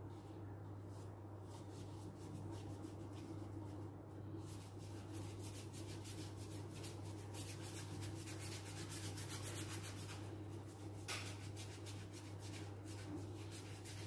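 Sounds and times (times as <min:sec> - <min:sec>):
paintbrush scrubbing on paper: 0:00.8 - 0:14.0.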